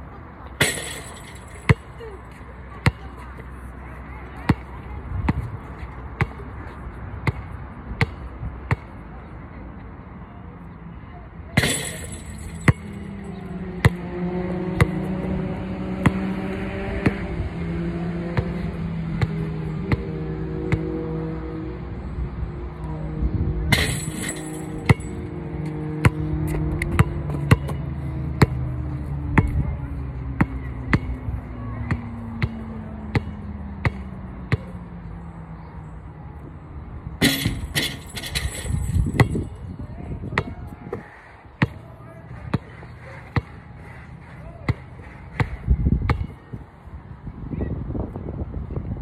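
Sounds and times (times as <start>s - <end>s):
basketball bouncing on asphalt: 2.7s - 3.5s, 4.4s - 6.5s, 7.2s - 9.0s, 11.6s - 14.2s, 14.8s - 15.1s, 15.9s - 17.2s, 23.7s - 29.8s, 30.4s - 34.8s, 37.2s - 39.6s, 40.2s - 43.6s, 44.5s - 46.5s
chain net rattling: 11.6s - 13.1s, 23.8s - 25.2s, 37.2s - 39.3s
basketball bouncing: 23.7s - 25.2s.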